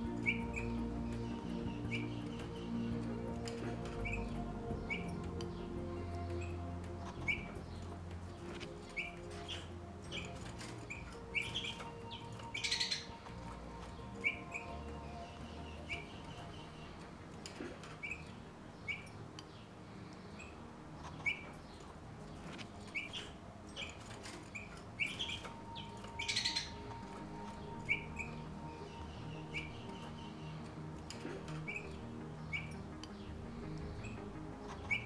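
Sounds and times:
finches chirping: 0:00.0 - 0:35.0.

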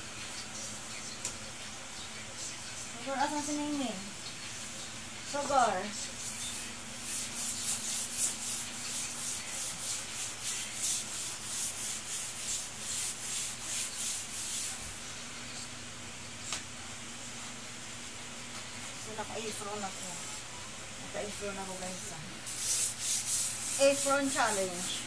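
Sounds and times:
rag scrubbing wet tiled floor: 0:06.3 - 0:14.8, 0:22.5 - 0:25.0.

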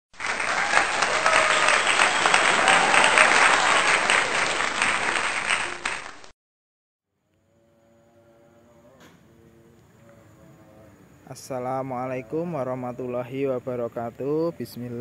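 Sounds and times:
crowd applause: 0:00.1 - 0:06.3.

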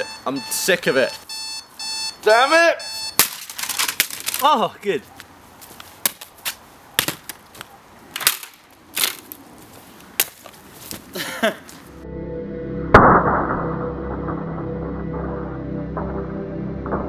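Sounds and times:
music with deep drone: 0:12.0 - 0:17.0
loud hit: 0:12.9 - 0:14.6.

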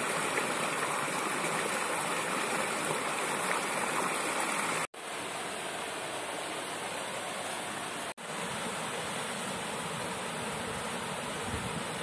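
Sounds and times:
small waterfall pouring into pool: 0:00.0 - 0:04.9
stream rushing over rocks: 0:00.0 - 0:12.0.

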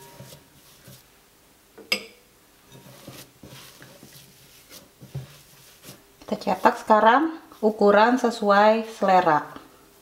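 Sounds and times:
clink on glass bowl: 0:01.9 - 0:02.8.

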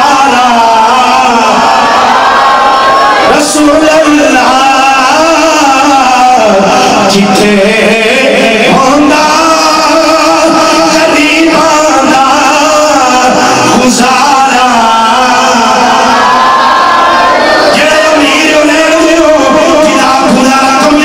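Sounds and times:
man singing devotional chant: 0:03.3 - 0:16.2, 0:17.7 - 0:21.0.

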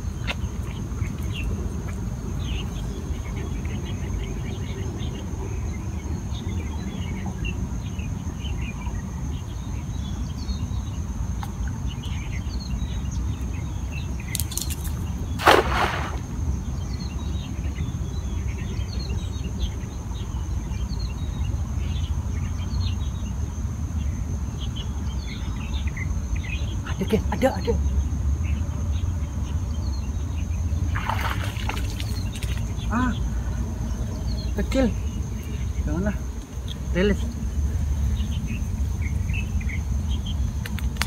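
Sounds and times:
high insect drone: 0:00.0 - 0:41.0
cast net splashing into water: 0:14.4 - 0:16.4, 0:30.9 - 0:32.8.

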